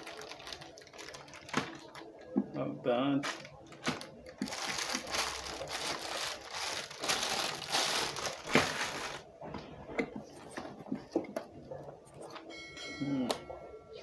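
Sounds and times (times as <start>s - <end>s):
plastic bag crinkling: 0.0s - 2.3s, 3.2s - 9.4s.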